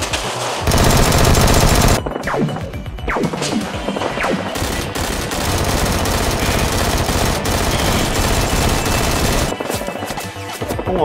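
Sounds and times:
rapid automatic gunfire: 0.6 - 2.0, 4.2 - 9.8.

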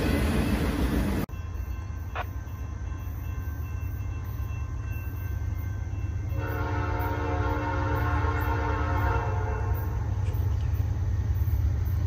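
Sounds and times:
train rumble: 0.0 - 12.0
train air horn chord: 6.3 - 10.0.

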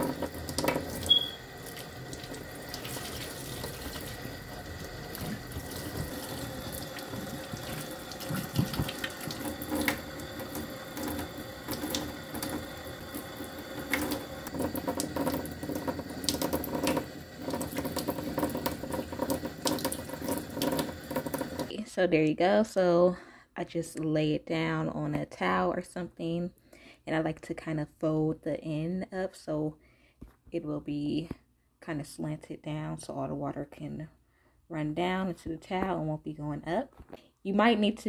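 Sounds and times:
tap water running into sink: 0.0 - 21.7.

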